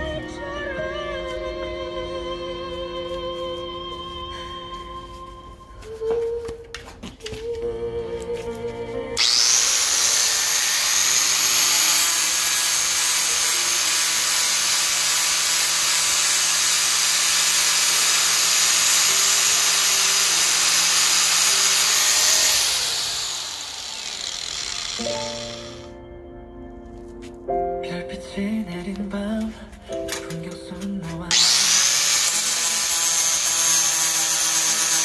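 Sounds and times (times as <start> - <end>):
angle grinder whining: 9.2 - 26.0, 31.3 - 35.0.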